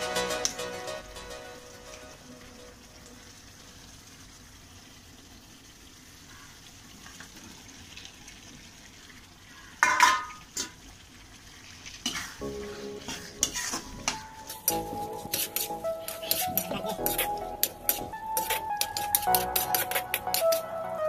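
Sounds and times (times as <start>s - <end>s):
faint frying sizzle: 0.0s - 21.0s
metal spatula clanking on pan: 9.8s - 10.7s, 13.0s - 20.6s.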